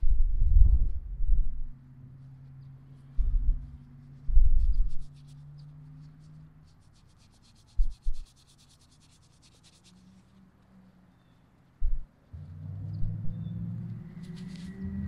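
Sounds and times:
fingers rubbing a coin: 2.2s - 10.4s
low handling thumps: 3.2s - 4.8s, 11.8s - 13.4s.

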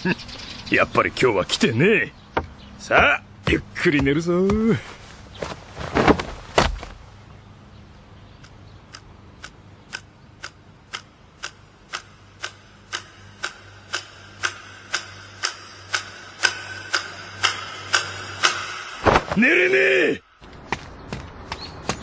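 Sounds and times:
clock ticking: 8.4s - 19.0s.

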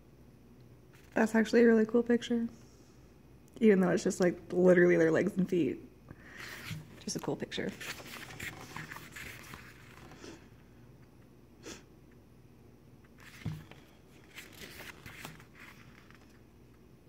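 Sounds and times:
pages turning: 6.3s - 10.5s, 13.0s - 16.5s.

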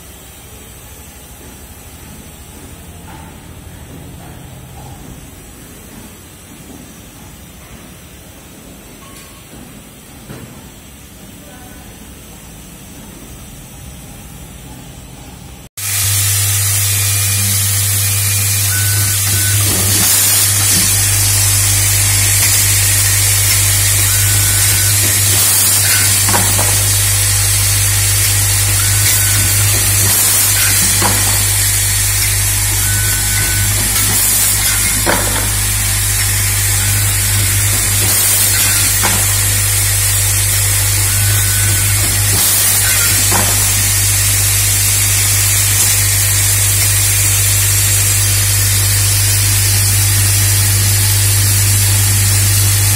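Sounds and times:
assembly machine hissing: 15.8s - 52.9s
vibratory bowl feeders buzzing: 15.8s - 52.9s
pneumatic gripper clack: 16.9s - 52.9s.

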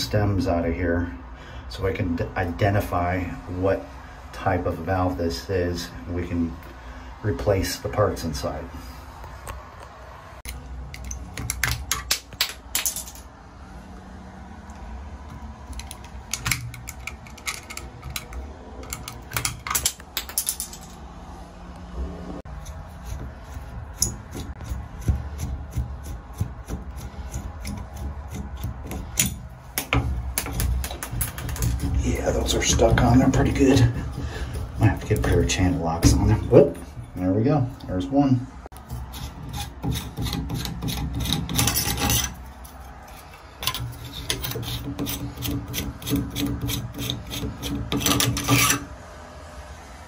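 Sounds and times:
screwdriver scraping metal: 15.3s - 21.0s, 22.5s - 37.9s, 38.8s - 48.9s.

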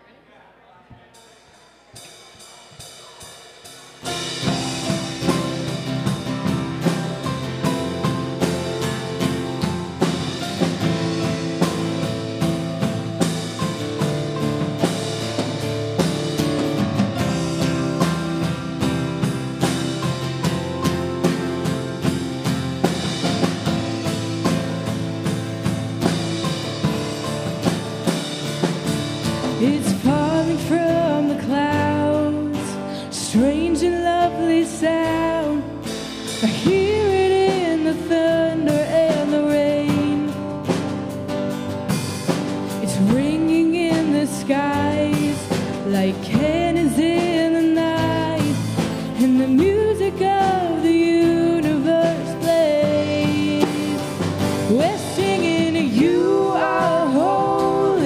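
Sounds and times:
band playing: 1.0s - 58.0s
drum beat: 1.2s - 30.2s, 53.6s - 58.0s
person singing: 29.4s - 40.5s, 42.8s - 58.0s.

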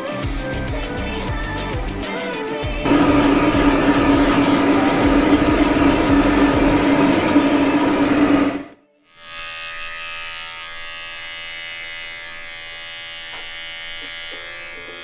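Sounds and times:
loud machine noise: 2.8s - 8.8s
electric pet trimmer humming: 2.8s - 15.0s.

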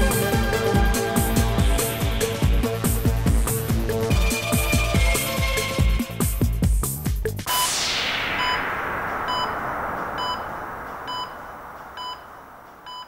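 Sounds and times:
electronic dance beat: 0.0s - 7.8s
short electronic beeps: 7.5s - 7.8s, 8.4s - 8.6s, 9.3s - 9.6s, 10.2s - 13.0s
falling white-noise sweep: 7.5s - 13.0s.

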